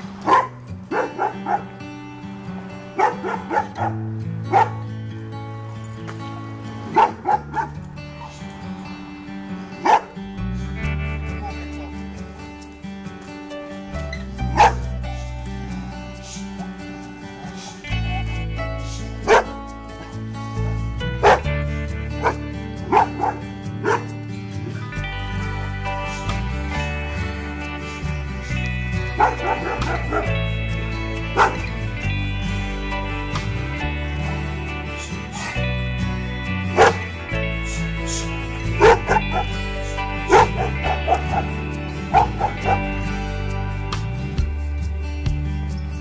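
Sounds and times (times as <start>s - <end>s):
background music: 0.0s - 46.0s
dog barking: 0.2s - 1.8s, 2.6s - 4.8s, 6.8s - 8.4s, 9.6s - 10.2s, 11.4s - 11.9s, 14.4s - 15.3s, 19.2s - 19.5s, 21.2s - 24.8s, 29.1s - 30.6s, 31.2s - 31.8s, 35.3s - 35.6s, 36.7s - 37.1s, 38.1s - 43.0s.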